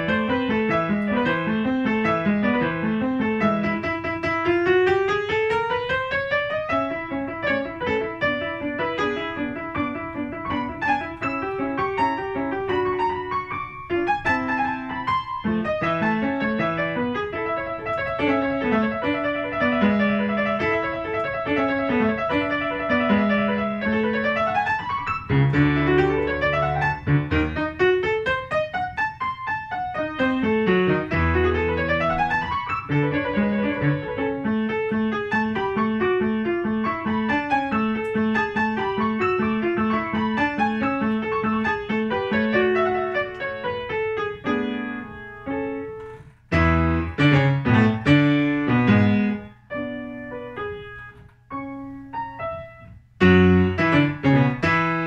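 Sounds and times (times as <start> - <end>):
classical piano piece: 0.0 - 55.0.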